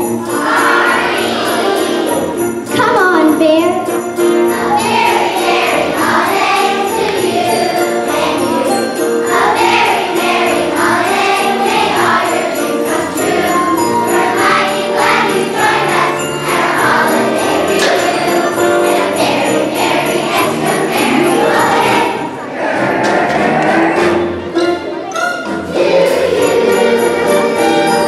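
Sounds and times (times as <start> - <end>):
children's choir singing: 0.0 - 2.8, 4.1 - 28.0
sleigh bells jingling: 0.0 - 22.2
musical accompaniment: 0.0 - 28.0.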